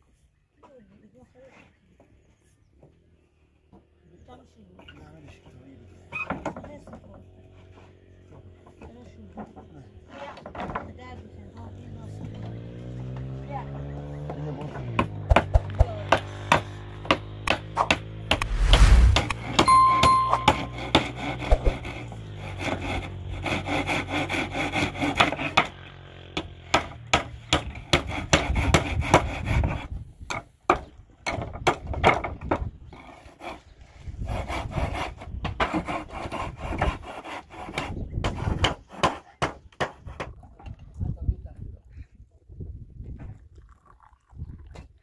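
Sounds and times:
brief chime: 0:19.6 - 0:21.1
hand saw cutting wood: 0:20.8 - 0:25.8, 0:26.7 - 0:30.4, 0:32.9 - 0:40.3.

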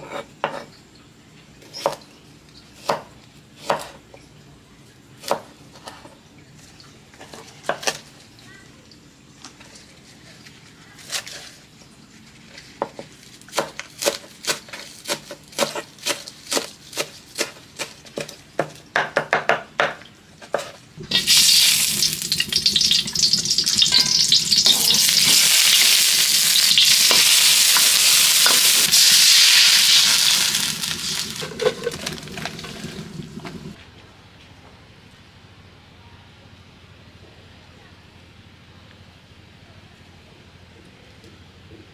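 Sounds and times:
garlic sizzling in hot oil: 0:21.0 - 0:33.8.

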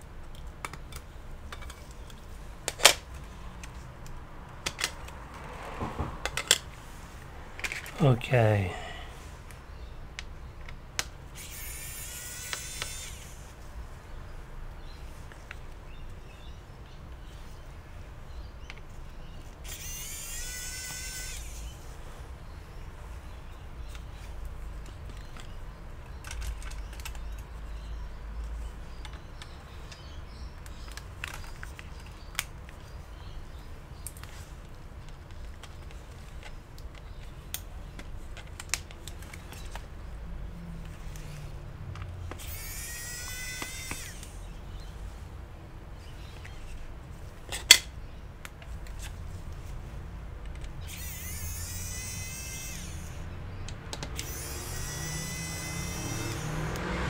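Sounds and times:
electric screwdriver whirring: 0:11.4 - 0:13.4, 0:42.3 - 0:44.4, 0:54.2 - 0:57.0.

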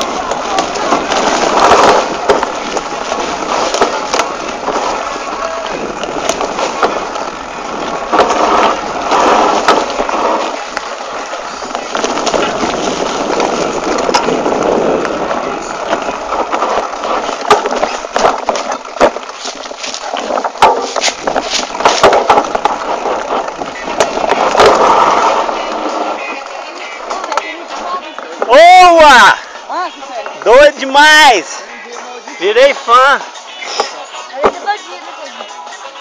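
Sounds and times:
bike frame and chain rattling: 0:00.0 - 0:27.6
sharp knocks over bumps: 0:00.0 - 0:27.6
bike tyres rolling on dirt: 0:00.0 - 0:36.0.

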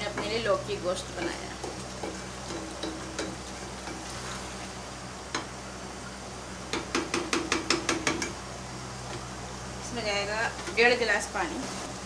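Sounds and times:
spices sizzling in oil: 0:00.0 - 0:12.0
ladle knocking against pot: 0:06.7 - 0:08.4.

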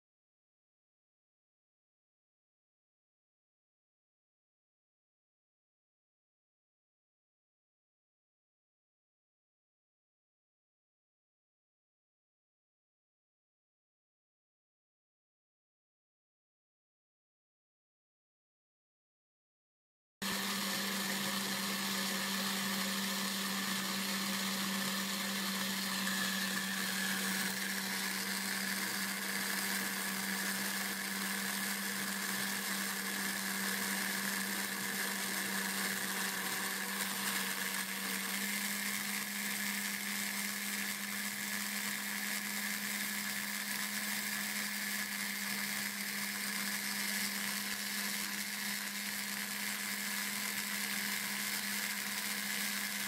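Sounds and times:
router spindle motor humming: 0:20.2 - 0:53.0.

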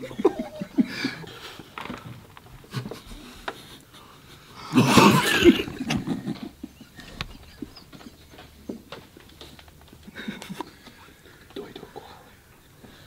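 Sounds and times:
stifled giggles: 0:00.0 - 0:08.9, 0:10.0 - 0:12.2
burst of laughter: 0:04.6 - 0:07.8.

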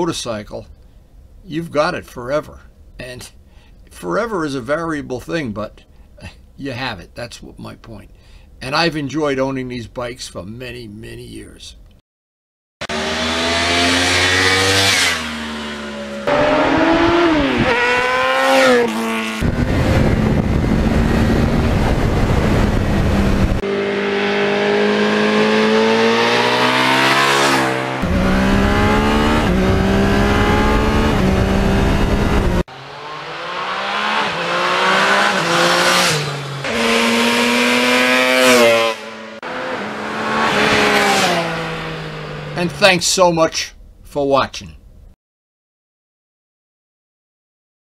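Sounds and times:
motorcycle engines revving: 0:12.8 - 0:43.0.

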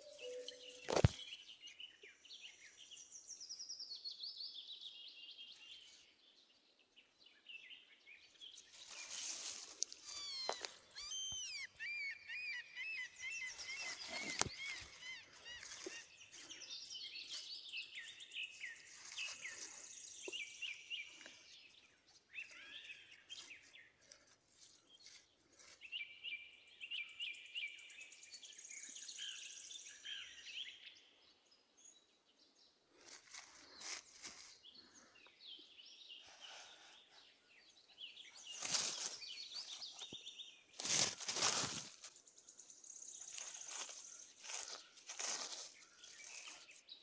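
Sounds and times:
grass and leaf litter rustling: 0:00.0 - 0:03.7, 0:08.2 - 0:11.5, 0:13.4 - 0:26.0, 0:33.0 - 0:35.0, 0:38.0 - 0:47.0
birds chirping: 0:00.0 - 0:47.0.

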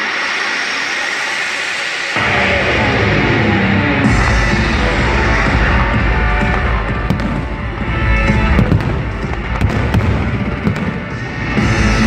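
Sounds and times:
loud music: 0:00.0 - 0:12.0
fireworks bangs: 0:05.0 - 0:12.0.

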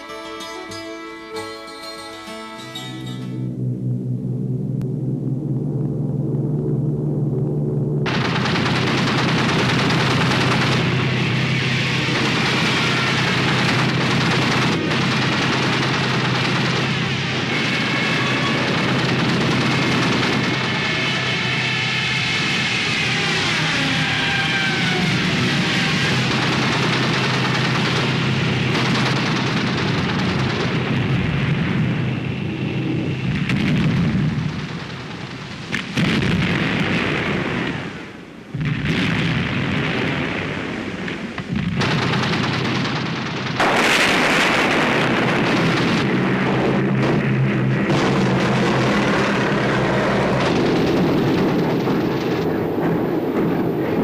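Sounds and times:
bomber piston engines droning: 0:02.8 - 0:35.6, 0:41.4 - 0:54.0
explosions: 0:08.0 - 0:54.0
gunfire: 0:08.1 - 0:21.4, 0:25.7 - 0:31.4, 0:33.4 - 0:53.5.

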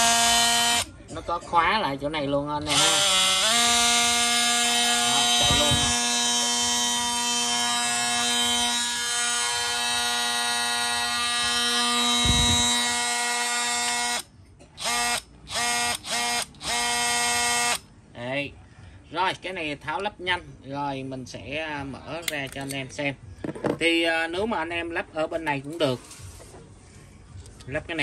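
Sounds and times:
oscillating multi-tool buzzing: 0:00.0 - 0:00.9, 0:02.7 - 0:17.8.

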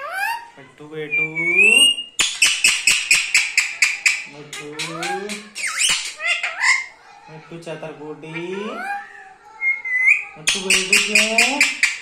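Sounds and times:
parakeet squawking: 0:01.2 - 0:07.0, 0:08.3 - 0:12.0
parakeet voice-like chatter: 0:02.4 - 0:07.1, 0:08.3 - 0:12.0.

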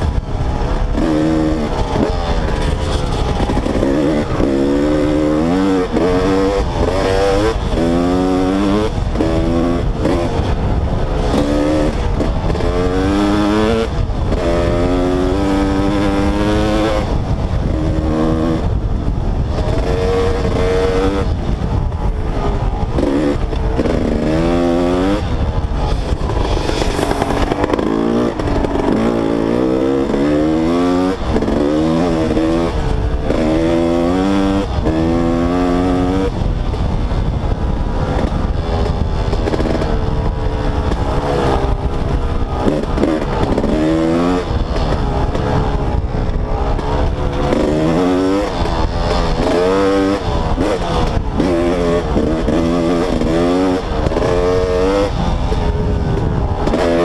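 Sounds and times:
two-stroke dirt bike engine revving: 0:00.0 - 0:57.0.

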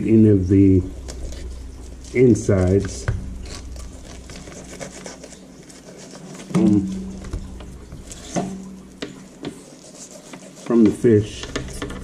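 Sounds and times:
wordless voice sounds: 0:00.0 - 0:01.0, 0:02.0 - 0:03.2, 0:06.5 - 0:07.1, 0:10.6 - 0:12.0
knife scraping on cutting board: 0:01.0 - 0:12.0.

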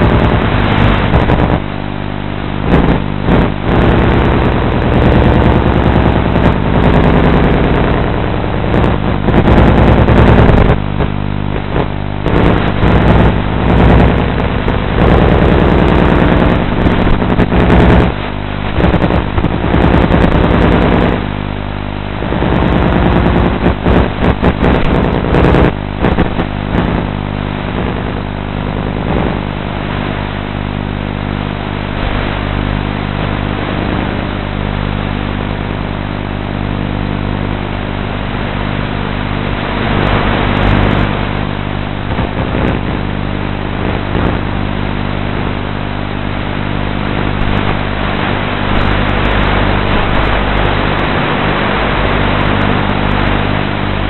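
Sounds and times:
electric motor and propellers droning: 0:36.4 - 0:45.5.

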